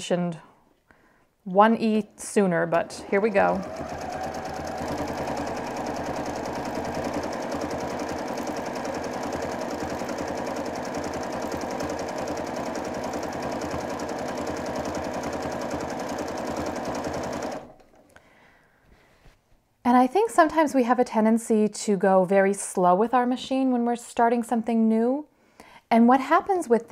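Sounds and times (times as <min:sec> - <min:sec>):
sewing machine running: 0:03.1 - 0:18.0.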